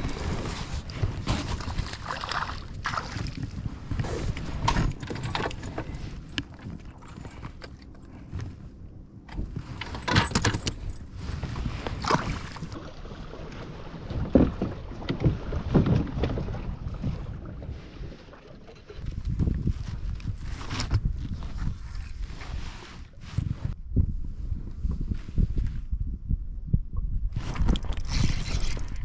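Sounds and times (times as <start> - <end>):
fishing gear clattering on kayak: 0.0 - 8.5, 9.3 - 12.8
wind rumble on microphone: 0.0 - 29.0.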